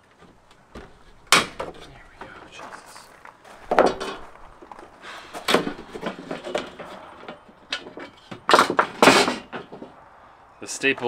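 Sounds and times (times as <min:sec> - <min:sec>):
metal tools knocking and scraping: 0:00.2 - 0:03.0, 0:03.6 - 0:10.0.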